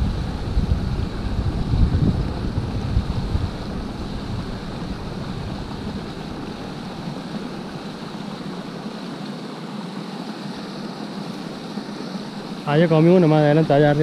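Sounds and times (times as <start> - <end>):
wind rumbling on microphone: 0.0 - 8.6
stream rushing over rocks: 0.0 - 14.0.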